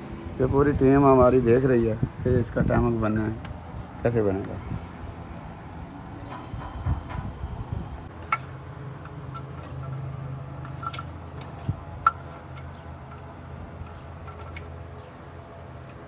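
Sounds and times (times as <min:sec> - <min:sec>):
spanner clinking on metal parts: 0:08.1 - 0:16.0.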